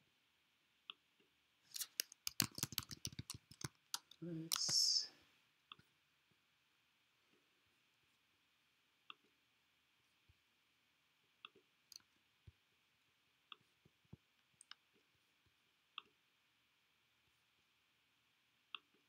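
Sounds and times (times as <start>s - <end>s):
mouse and keyboard clicks: 1.7s - 5.0s.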